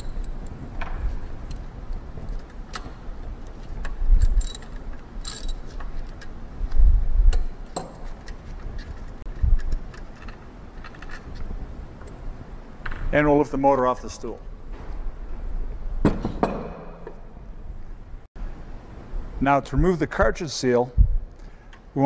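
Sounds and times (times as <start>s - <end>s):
socket ratchet clicking: 2.3s - 6.4s.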